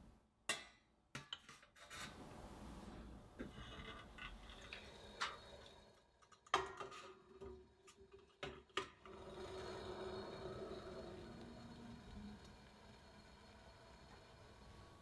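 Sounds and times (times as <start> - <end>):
water boiling hiss: 9.3 - 15.0.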